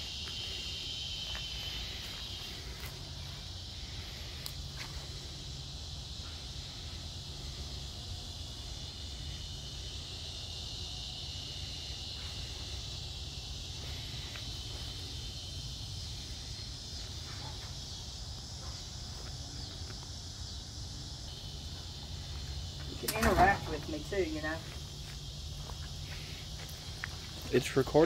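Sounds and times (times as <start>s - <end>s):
insects chirping: 0.0s - 28.0s
faint ticks: 4.4s - 4.6s.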